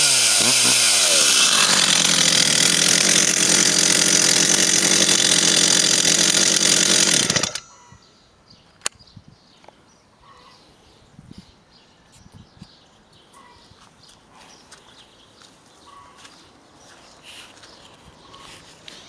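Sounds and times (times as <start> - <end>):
chainsaw running at high revs: 0.0 - 7.7.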